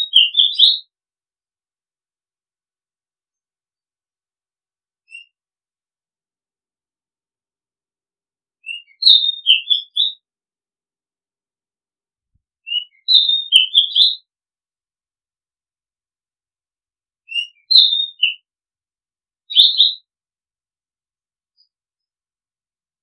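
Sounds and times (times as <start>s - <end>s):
bird singing whistled notes: 0.0s - 0.9s, 5.0s - 5.4s, 8.6s - 10.2s, 12.6s - 14.3s, 17.3s - 18.5s, 19.5s - 20.1s.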